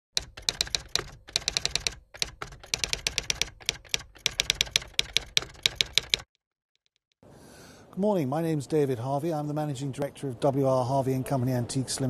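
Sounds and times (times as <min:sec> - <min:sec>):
rapid typing keystrokes: 0:00.1 - 0:07.1.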